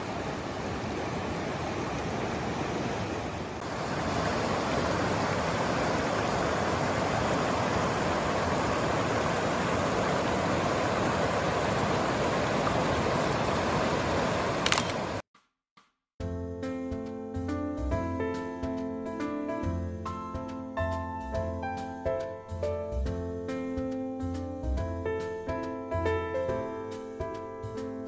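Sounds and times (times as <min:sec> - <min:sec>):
rushing mountain stream: 0:00.0 - 0:15.2
brief click: 0:14.6 - 0:15.0.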